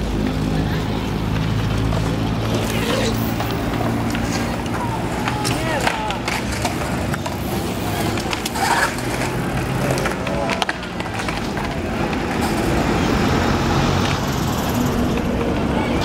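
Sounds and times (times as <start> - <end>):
street traffic noise: 0.0 - 16.0
voices and chatter: 0.0 - 16.0.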